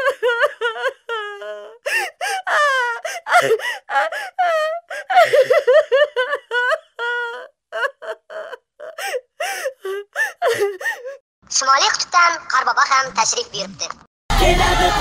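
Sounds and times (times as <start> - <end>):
person wailing and sobbing: 0.0 - 11.2.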